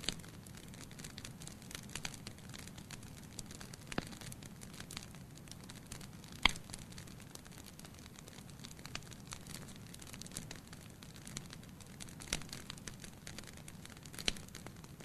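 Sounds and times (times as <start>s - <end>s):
burning logs crackling: 0.0s - 15.0s
low fire rumble: 0.0s - 15.0s.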